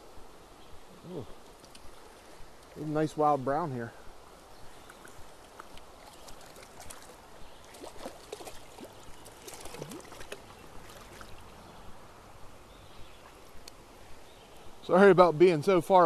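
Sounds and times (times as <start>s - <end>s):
stream water running: 0.0s - 16.0s
fish splashing at surface: 6.0s - 11.5s.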